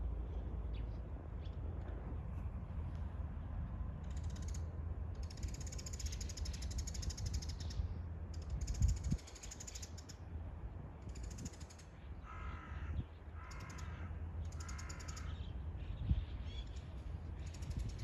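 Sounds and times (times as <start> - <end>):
crow cawing: 12.2 - 15.4.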